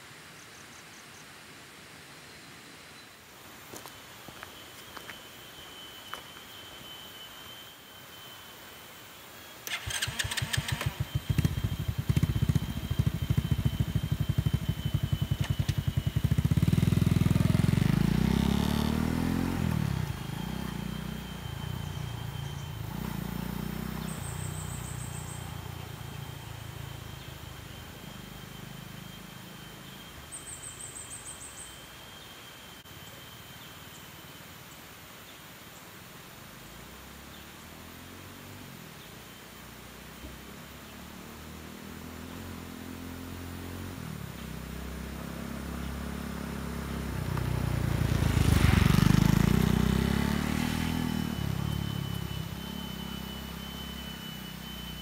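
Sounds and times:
motorcycle engine starting with clatter: 0:09.6 - 0:27.3, 0:45.2 - 0:55.0
motorcycle engine idling and revving: 0:09.6 - 0:34.4, 0:36.2 - 0:55.0.

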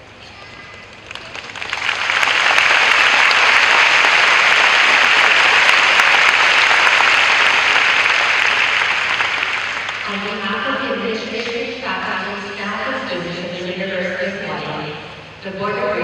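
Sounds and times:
audience applauding: 0:00.9 - 0:10.1.

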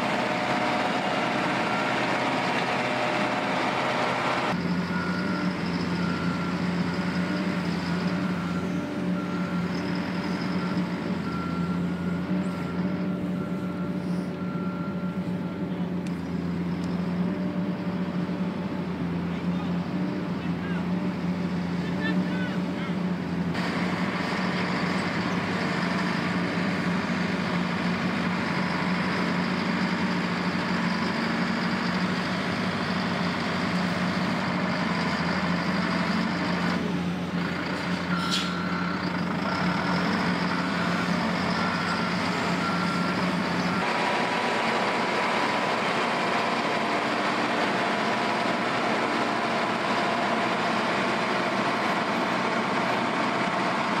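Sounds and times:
diesel engines of heavy machines: 0:00.0 - 0:54.0
back-up alarm beeping: 0:04.5 - 0:18.8, 0:38.0 - 0:44.9.

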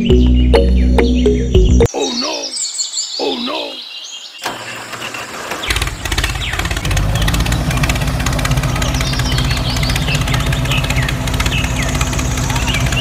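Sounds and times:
birds chirping: 0:00.0 - 0:13.0
small engine idling: 0:04.5 - 0:13.0.

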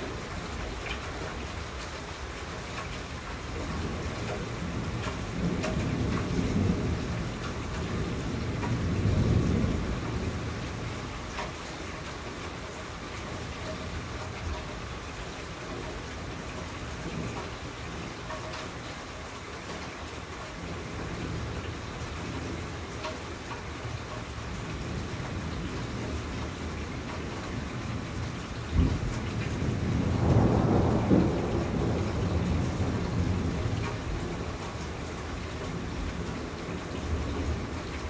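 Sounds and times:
steady rain: 0:00.0 - 0:38.0
low thunder rumble: 0:03.7 - 0:11.2, 0:24.8 - 0:38.0
loud thunder clap: 0:28.7 - 0:34.2.

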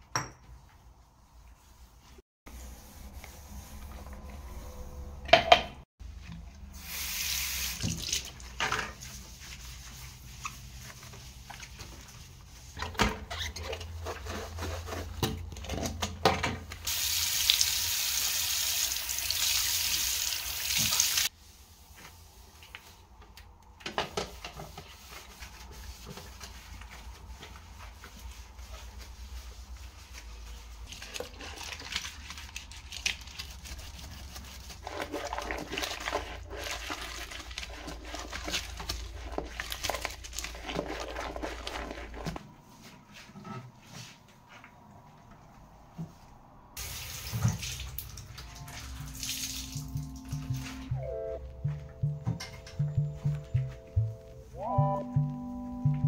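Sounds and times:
tap water running into sink: 0:16.9 - 0:21.3.

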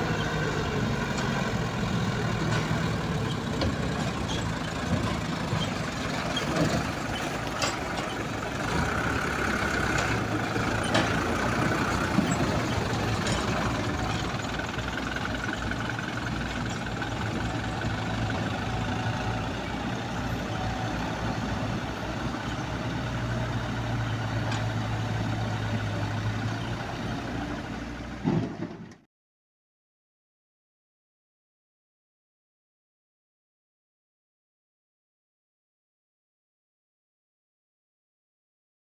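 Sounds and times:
diesel engines running: 0:00.0 - 0:29.0
clanks and knocks: 0:02.4 - 0:09.0, 0:09.9 - 0:17.8, 0:28.2 - 0:29.0.

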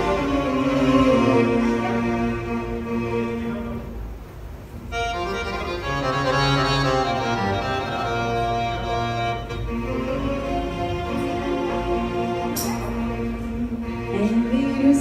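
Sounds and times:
organ-like keyboard music: 0:04.9 - 0:14.0.

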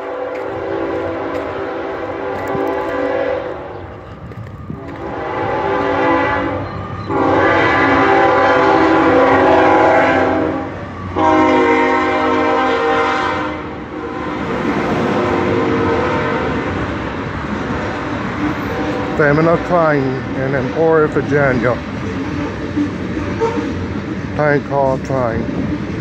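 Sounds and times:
locomotive air horn blasts: 0:00.0 - 0:03.9, 0:04.8 - 0:14.6, 0:15.2 - 0:16.8, 0:23.4 - 0:23.8.

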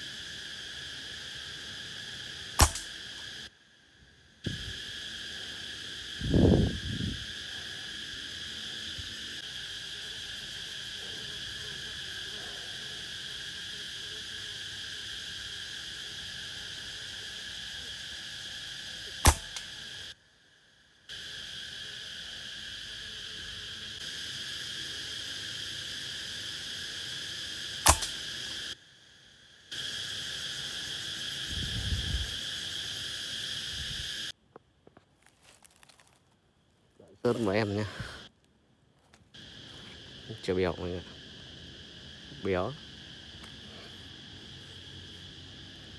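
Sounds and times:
insects chirring: 0:00.0 - 0:45.9
air rifle shots: 0:02.6 - 0:03.0, 0:19.2 - 0:19.7, 0:27.8 - 0:28.2.

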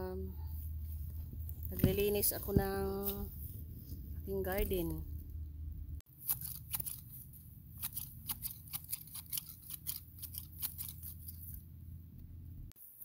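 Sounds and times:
garden shears snipping grass: 0:06.1 - 0:07.2, 0:07.8 - 0:11.5.

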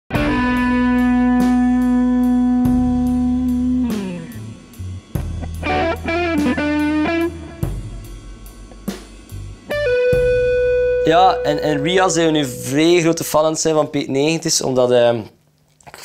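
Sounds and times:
electric guitar: 0:00.1 - 0:09.0, 0:09.6 - 0:13.3
bass line: 0:00.1 - 0:13.6
steady drum beat: 0:00.2 - 0:13.7.

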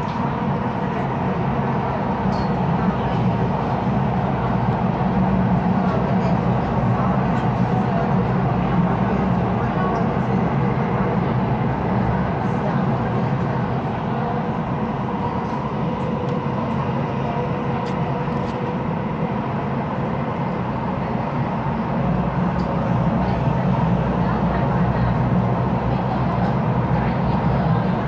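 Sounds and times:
train wheels rumbling on rail: 0:00.0 - 0:28.0.

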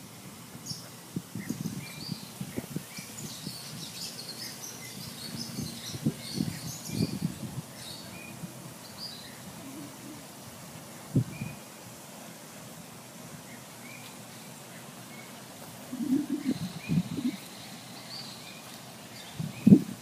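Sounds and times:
small birds chirping: 0:00.6 - 0:11.8, 0:13.4 - 0:20.0.

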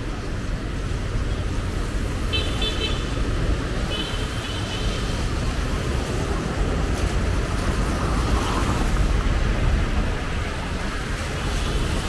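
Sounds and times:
rumble of passing vehicles: 0:00.0 - 0:12.0.

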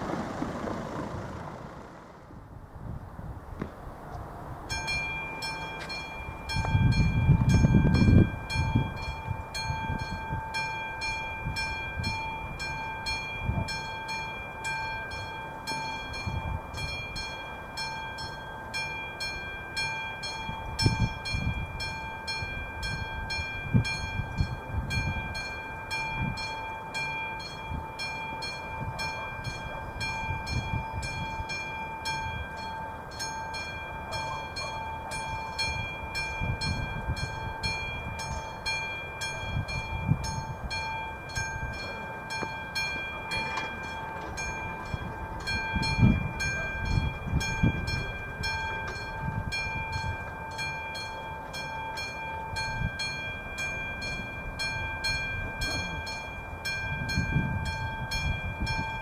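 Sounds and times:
low rumble: 0:00.0 - 0:03.3
level crossing bell ringing: 0:04.7 - 0:59.0.

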